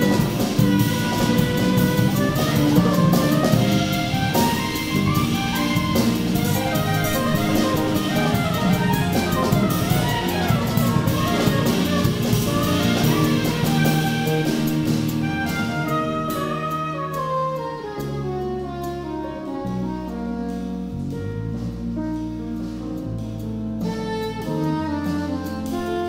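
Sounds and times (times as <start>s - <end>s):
soprano saxophone: 0.0s - 21.6s, 23.8s - 26.0s
bass: 0.0s - 26.0s
drum kit with ride cymbal: 0.0s - 26.0s
grand piano: 0.0s - 26.0s.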